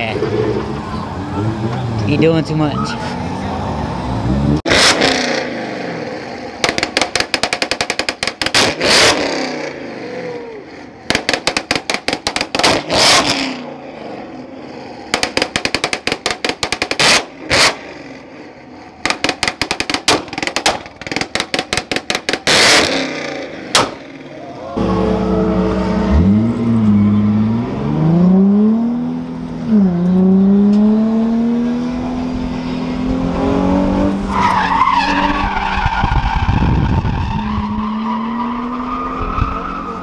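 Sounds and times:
car engine revving: 2.9 - 7.4, 22.2 - 40.0
rapid exhaust pops and bangs: 6.6 - 9.2, 11.0 - 13.3, 15.1 - 17.8, 19.0 - 23.1.

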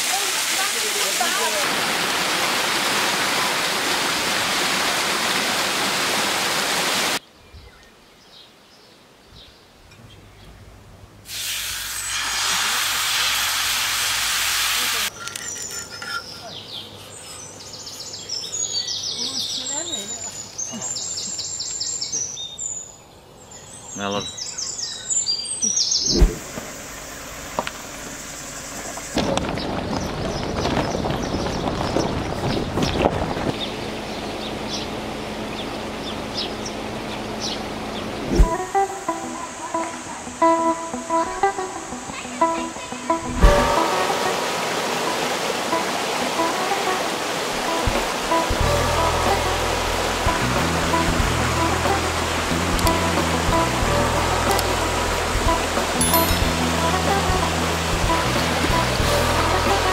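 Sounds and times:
waterfall and stream roaring: 0.0 - 7.3, 38.1 - 59.9
car rumbling on dirt road: 26.2 - 38.6
gravel crackling under tyres: 26.4 - 38.2
faint high bird chirps: 56.0 - 56.5.

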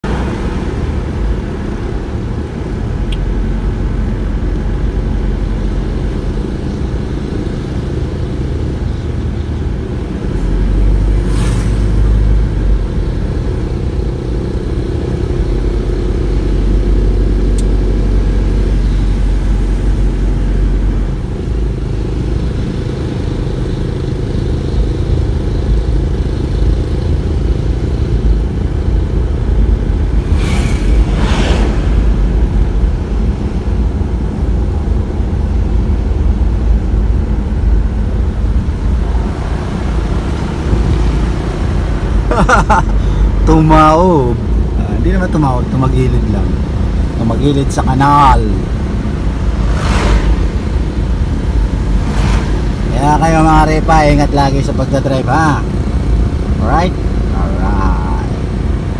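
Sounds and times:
car road and engine rumble: 0.0 - 58.9
brief rushing sound: 30.0 - 34.4, 49.3 - 53.2.

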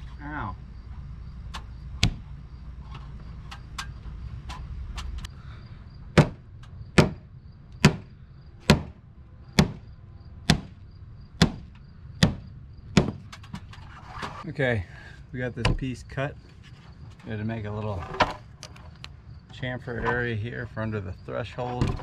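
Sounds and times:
low steady rumble: 0.0 - 22.0
hammer striking wood: 6.1 - 6.4, 7.0 - 7.2, 7.8 - 9.0, 9.6 - 9.9, 10.5 - 10.8, 11.4 - 13.3.

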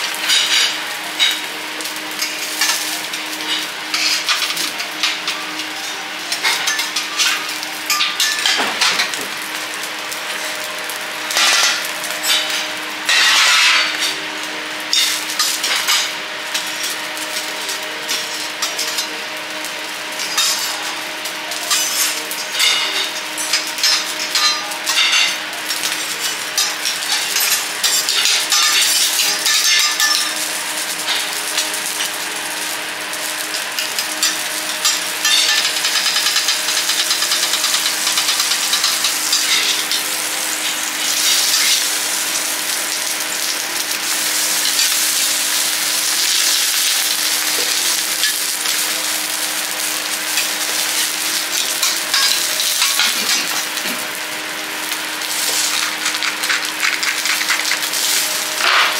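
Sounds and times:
vegetables sizzling in oil: 0.0 - 58.9
metal spatula scraping griddle: 0.2 - 9.2, 11.3 - 14.2, 55.2 - 58.9.

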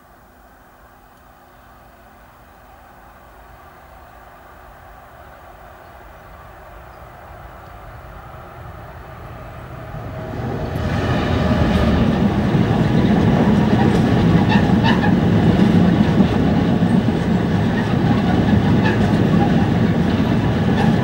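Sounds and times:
diesel locomotive: 0.0 - 21.0
wagons rumbling over crossing: 8.6 - 21.0
wheels clicking over rail joints: 10.8 - 21.0.

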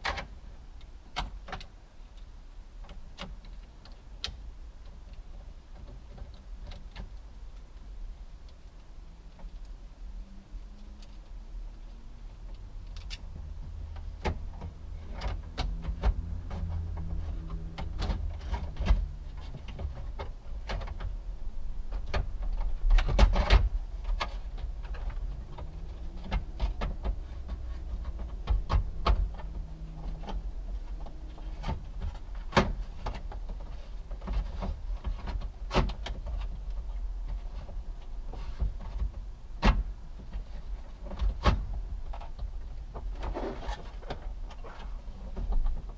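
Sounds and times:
low steady hum: 0.0 - 45.9.

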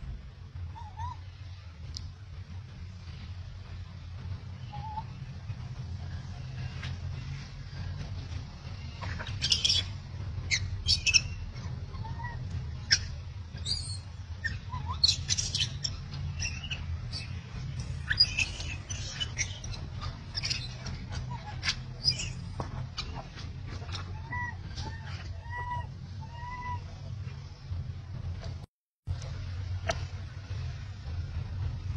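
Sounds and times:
low steady hum: 0.0 - 31.9
animal squeaks and chirps: 0.7 - 1.4, 8.8 - 27.2.

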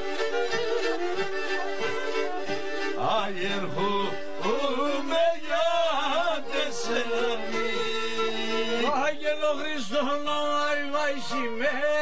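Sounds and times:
bowed lyras playing folk tune: 0.0 - 12.0
man singing melismatic line: 3.0 - 12.0.

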